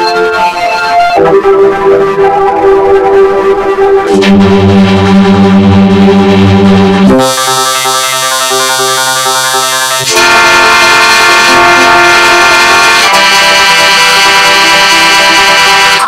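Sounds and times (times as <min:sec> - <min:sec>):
distorted buzzing jingle: 0:04.1 - 0:16.0.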